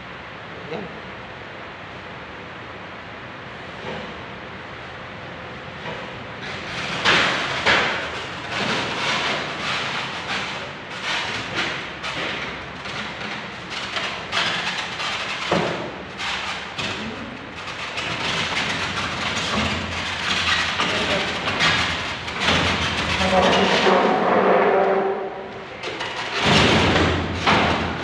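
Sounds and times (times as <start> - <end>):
air conditioner casing knocking: 5.8 - 24.8, 25.5 - 28.0.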